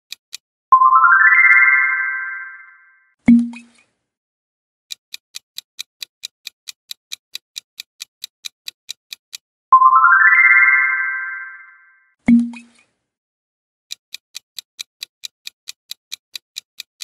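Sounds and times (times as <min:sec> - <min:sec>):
clock ticks: 0:00.0 - 0:00.4, 0:04.9 - 0:09.5, 0:13.9 - 0:17.0.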